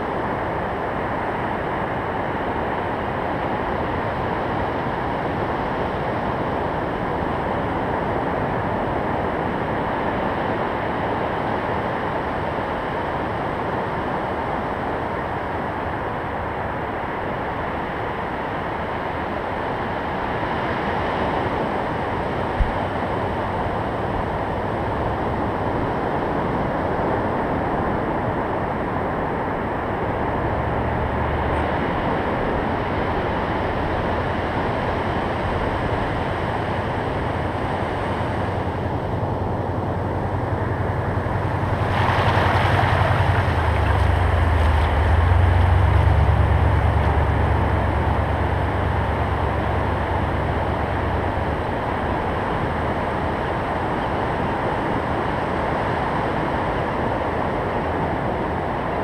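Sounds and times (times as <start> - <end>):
deep rumble of wave wash: 0.0 - 59.0
ocean surf breaking: 31.7 - 55.5.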